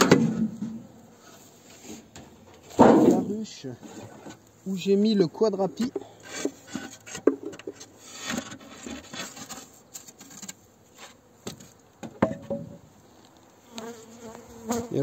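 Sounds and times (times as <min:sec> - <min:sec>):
wood knocking and scraping on wood: 0:01.7 - 0:04.4, 0:05.8 - 0:12.8.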